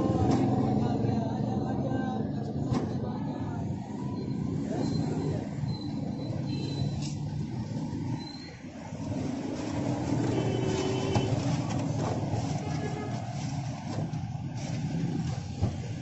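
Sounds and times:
faint voices: 0.0s - 6.5s
street traffic: 0.0s - 16.0s.

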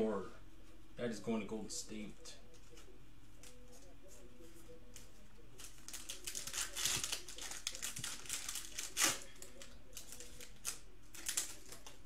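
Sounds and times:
foil wrapper crinkling and tearing: 5.0s - 12.0s.

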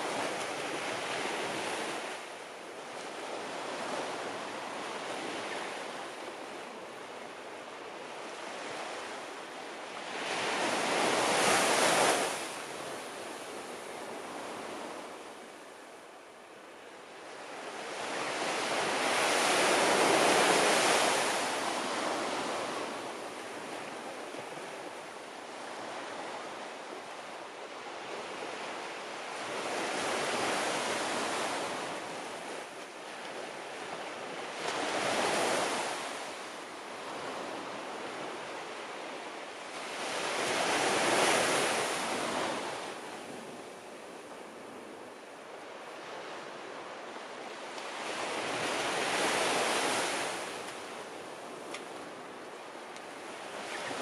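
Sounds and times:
waves breaking on beach: 0.0s - 54.0s.

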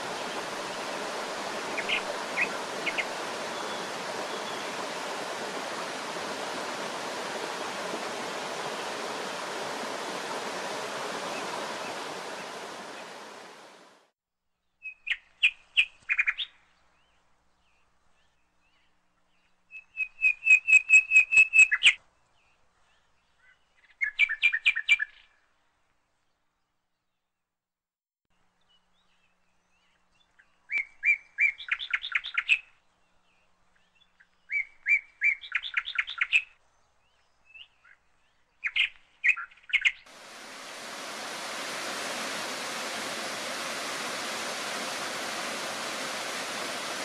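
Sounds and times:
small birds singing: 0.0s - 6.5s, 28.6s - 40.1s
stream rushing over rocks: 0.0s - 14.1s, 40.1s - 47.0s.

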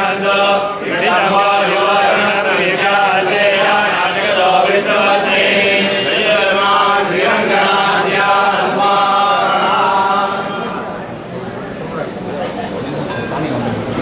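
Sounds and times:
men chanting: 0.0s - 10.8s.

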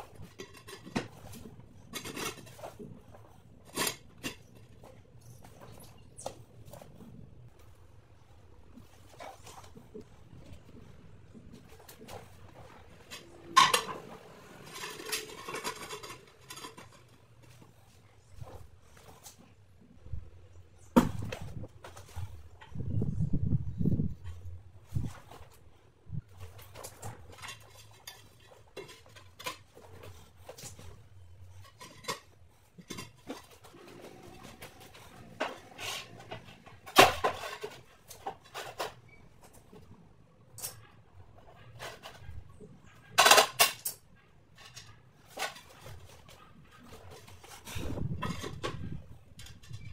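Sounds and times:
tile scraping and clattering: 0.0s - 20.0s, 23.8s - 49.9s.

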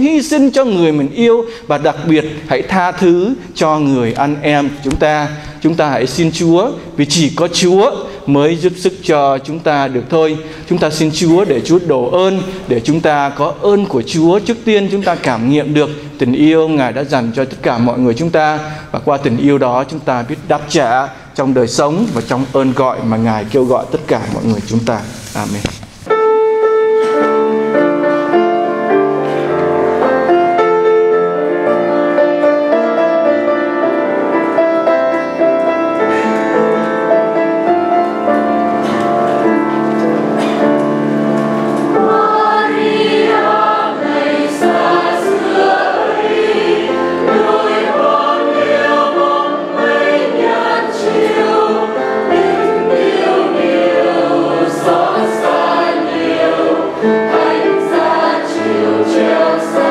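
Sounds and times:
choir singing a hymn: 32.4s - 59.9s.

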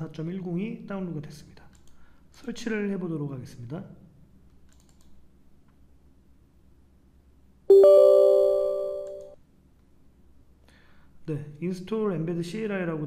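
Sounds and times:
bell-like system chime: 7.7s - 9.4s.

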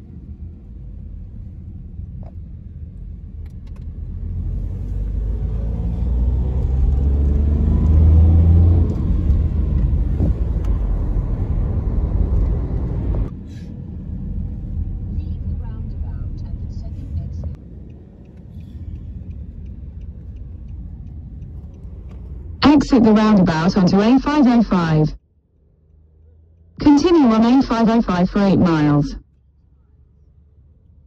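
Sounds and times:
road noise inside car: 0.0s - 31.0s
car engine accelerating: 4.0s - 13.1s.

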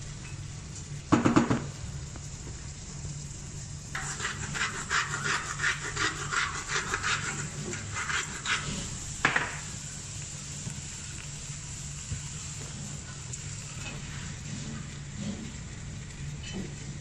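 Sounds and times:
mill knocking on stone counter: 1.1s - 1.7s
hand grinder mill rasping: 4.0s - 8.7s.

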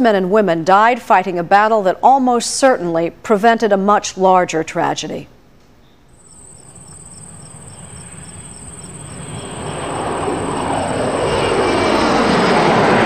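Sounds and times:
high insect chirring: 6.2s - 11.6s
jet aircraft passing: 6.2s - 13.0s.

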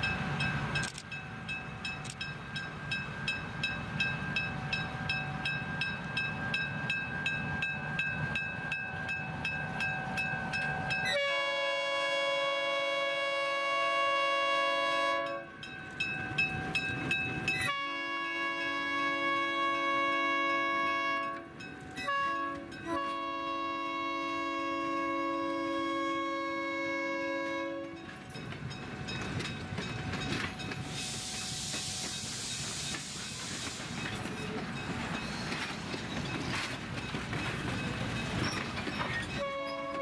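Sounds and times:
locomotive horn blasts: 11.1s - 15.5s, 17.7s - 28.1s, 39.4s - 40.0s
train cars clattering and rumbling: 27.9s - 40.0s
wheels clicking over rail joints: 31.7s - 40.0s.

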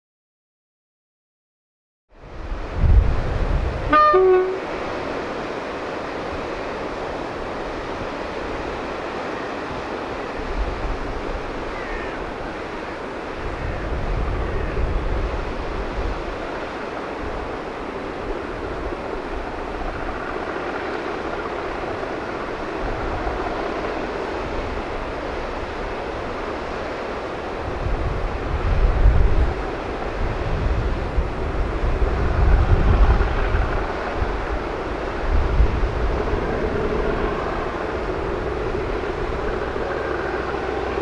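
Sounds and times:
wind: 2.1s - 41.0s
surf: 2.3s - 41.0s
locomotive horn: 3.8s - 4.8s.

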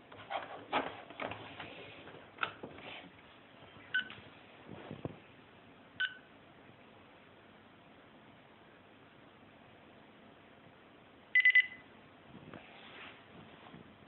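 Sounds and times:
high buzzer beeps: 11.4s - 11.8s.

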